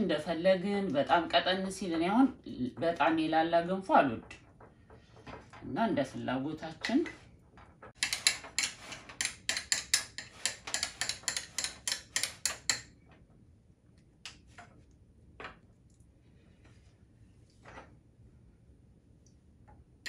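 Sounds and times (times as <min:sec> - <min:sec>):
metal spoon tapping ceramic: 0:08.0 - 0:12.9.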